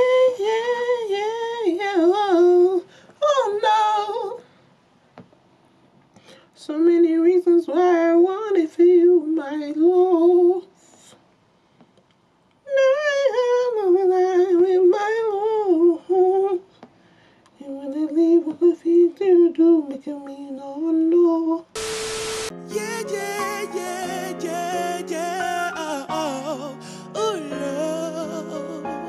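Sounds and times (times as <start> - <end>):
burst of hiss: 21.8 - 22.6
keyboard music: 21.8 - 29.0.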